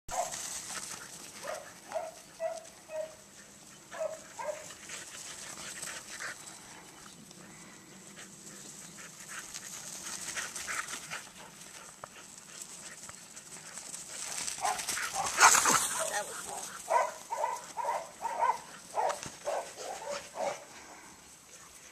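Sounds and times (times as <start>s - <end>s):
dog barking: 0.1s - 0.4s, 1.4s - 3.2s, 3.9s - 4.6s, 14.6s - 20.7s.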